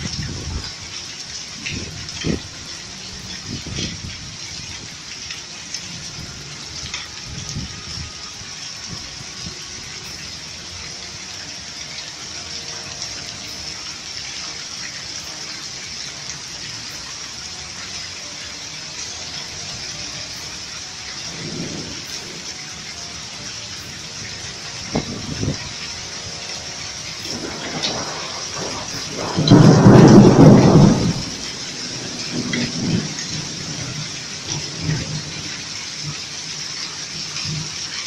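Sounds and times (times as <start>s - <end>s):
hail and heavy rain pelting: 0.0s - 38.0s
low thunder rumbles: 21.3s - 22.6s, 27.2s - 36.2s.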